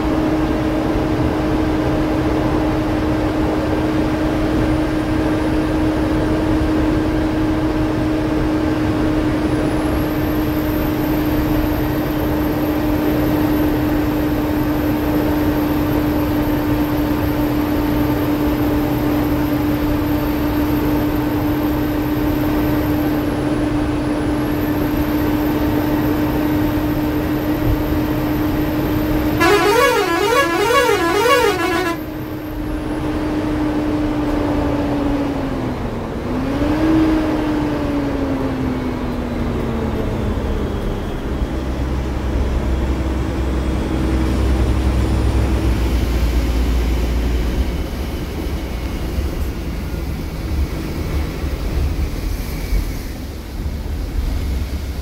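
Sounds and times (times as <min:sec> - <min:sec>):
bus engine whine: 0:00.0 - 0:55.0
road noise: 0:00.0 - 0:55.0
warbling multi-tone horn: 0:29.4 - 0:32.4.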